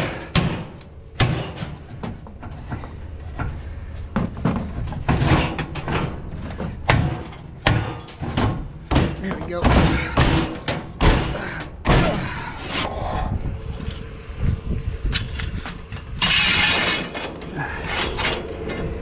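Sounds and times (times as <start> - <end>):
knocks and clattering of objects: 0.0 - 12.9
low steady rumble: 0.0 - 19.0.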